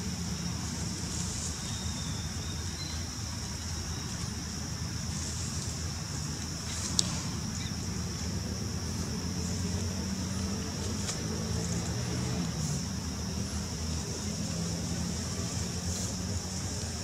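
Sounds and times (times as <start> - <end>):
high hiss: 0.0 - 17.0.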